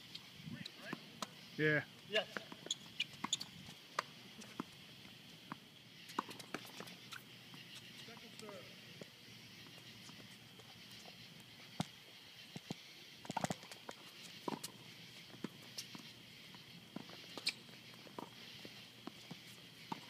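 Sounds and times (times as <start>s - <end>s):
faint high hiss: 0.0s - 20.0s.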